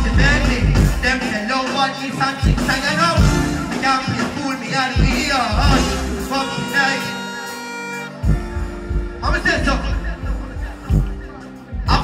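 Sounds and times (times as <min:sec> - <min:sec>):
heavy bass and drum riddim: 0:00.0 - 0:12.0
person deejaying over music: 0:00.0 - 0:12.0
held synth tones: 0:05.1 - 0:11.8.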